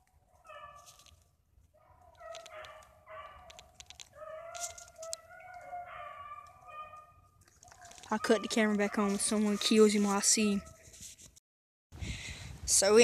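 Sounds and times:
twigs crackling: 0.0s - 11.4s
dogs baying: 0.3s - 0.9s, 1.8s - 9.9s.

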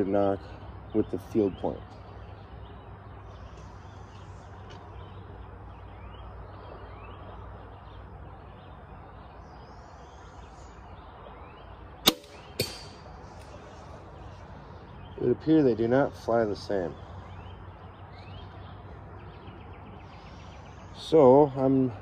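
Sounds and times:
songbirds chirping: 0.0s - 22.0s
bolt hitting target: 12.0s - 13.0s
crossbow firing crack: 12.0s - 13.1s.

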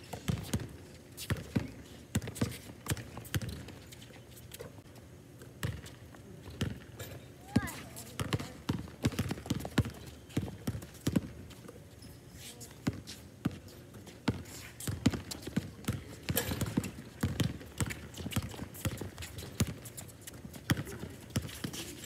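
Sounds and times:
basketball bouncing on hard court: 5.6s - 5.8s, 6.6s - 6.8s, 7.5s - 11.3s, 14.3s - 19.8s, 20.7s - 21.7s.

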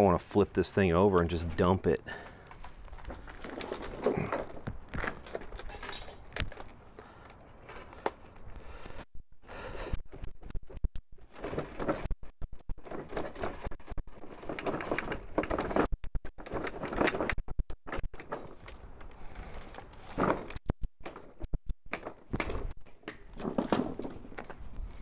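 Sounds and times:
plastic mower deck knocking and rattling: 10.8s - 18.8s, 20.1s - 24.6s.

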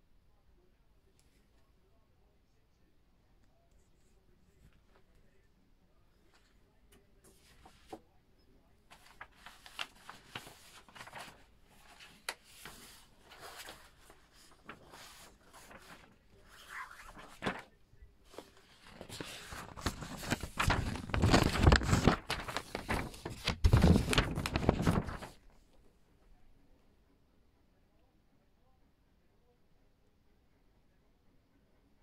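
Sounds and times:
photos rustling: 8.8s - 25.6s.

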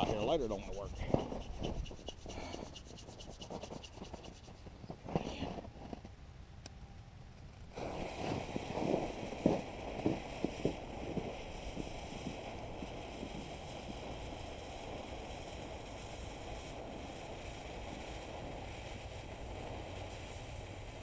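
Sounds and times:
fuse hissing: 7.7s - 21.0s.

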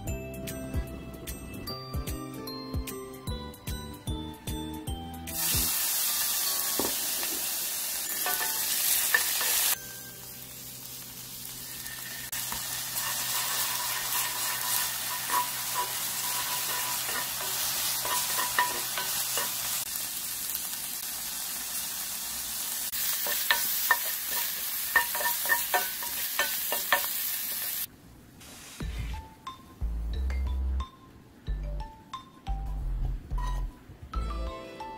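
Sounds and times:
shrimp sizzling in frying pan: 5.3s - 27.9s
wooden spoon tapping pan: 13.9s - 19.6s, 23.2s - 27.1s.

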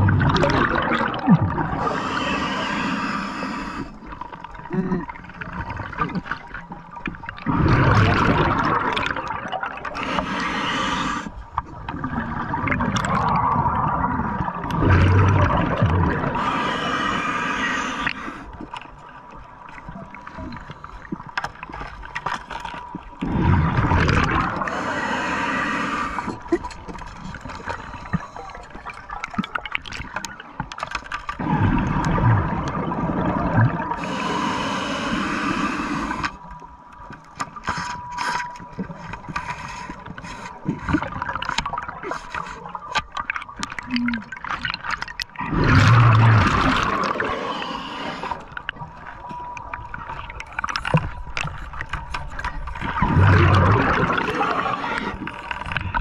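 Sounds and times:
exhaled bubbles gurgling: 0.0s - 36.5s, 40.1s - 56.0s
diver breathing through regulator: 1.7s - 4.1s, 9.9s - 11.4s, 16.2s - 18.6s, 24.4s - 26.5s, 33.9s - 36.4s, 45.4s - 48.7s, 53.4s - 56.0s.

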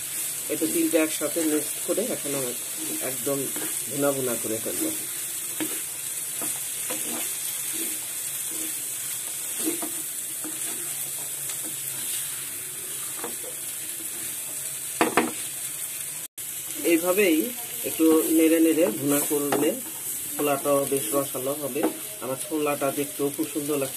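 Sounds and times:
masala sizzling in a frying pan: 0.0s - 23.9s
spatula scraping pan: 0.2s - 14.5s.

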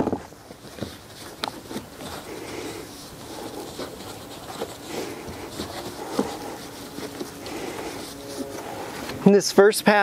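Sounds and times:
towel rubbing on car paint: 1.8s - 9.4s.

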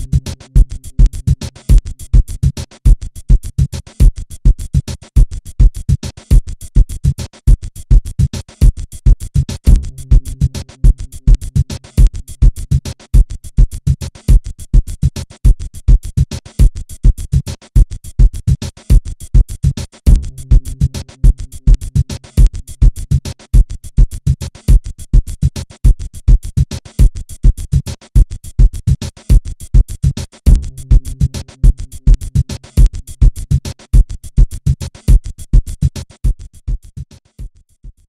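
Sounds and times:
low bass notes: 0.0s - 1.2s, 9.7s - 11.7s, 20.1s - 21.9s, 30.5s - 32.5s
electronic music with drum-machine beat: 0.0s - 38.0s.

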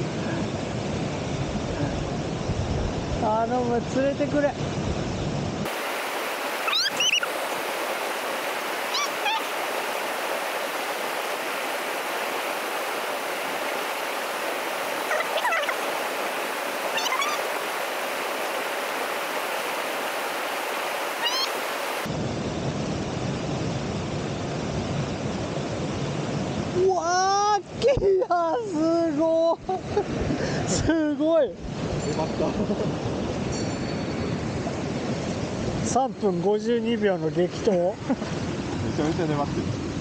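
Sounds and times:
stream rushing over rocks: 5.5s - 22.2s
short rising chirps: 6.6s - 7.4s, 8.9s - 9.5s, 16.9s - 17.5s, 21.2s - 21.6s.

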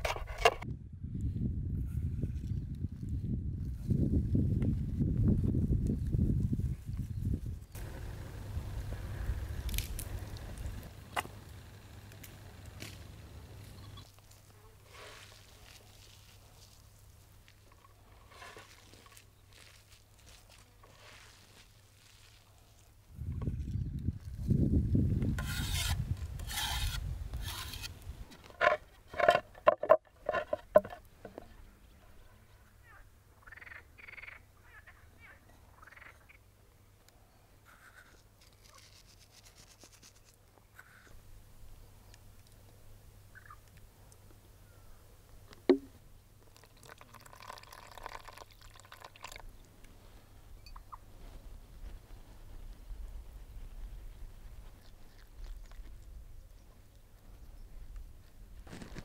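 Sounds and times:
flour pouring rustle: 18.3s - 22.5s
hands kneading wet greens: 18.6s - 23.0s
sharp wooden knocks: 45.7s - 46.0s
liquid pouring into flour: 46.5s - 49.4s.

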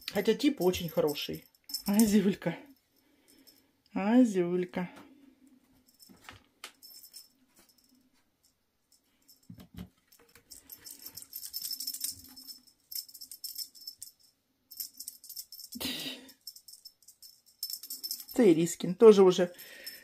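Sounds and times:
cat toy jingling: 0.0s - 3.5s, 6.8s - 8.0s, 10.1s - 18.7s, 19.4s - 20.0s.

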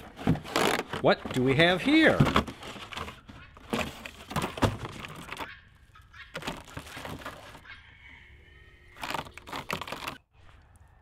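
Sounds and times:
cardboard packaging rustling: 0.0s - 5.5s, 6.4s - 7.6s, 9.0s - 10.2s.

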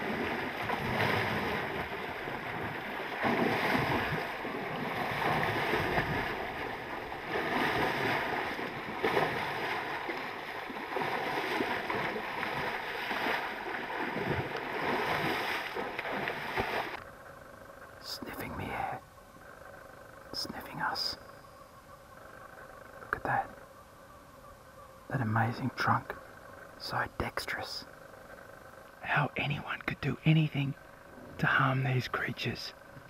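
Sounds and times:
water splashing and sloshing: 0.0s - 17.2s.

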